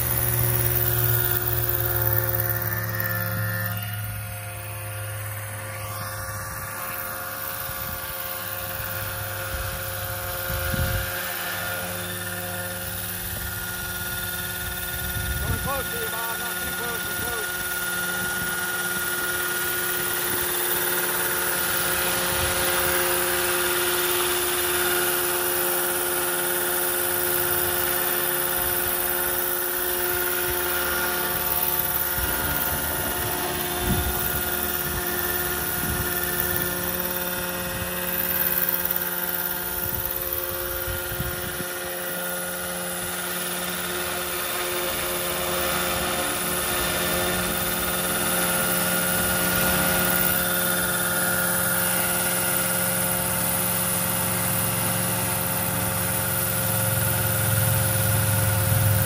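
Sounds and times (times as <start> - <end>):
rc helicopter hovering: 0.0 - 59.0.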